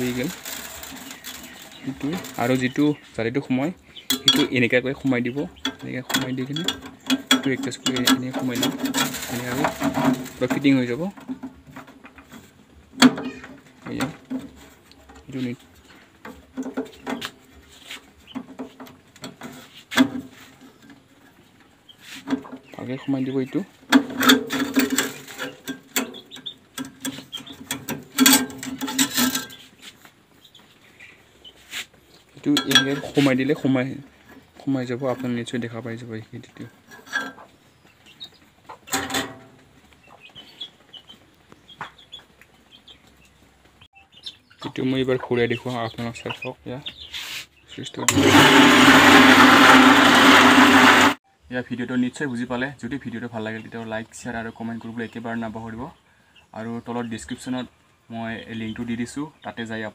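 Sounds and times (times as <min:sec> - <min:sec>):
chickens clucking: 0:00.0 - 0:48.1
metal parts knocking and clattering: 0:05.6 - 0:12.4, 0:23.9 - 0:29.6, 0:38.9 - 0:39.5.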